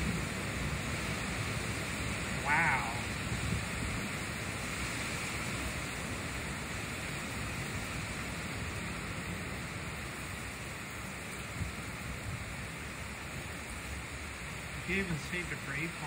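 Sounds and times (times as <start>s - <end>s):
wind buffeting microphone: 0.0s - 9.6s
heavy rain: 0.0s - 16.0s.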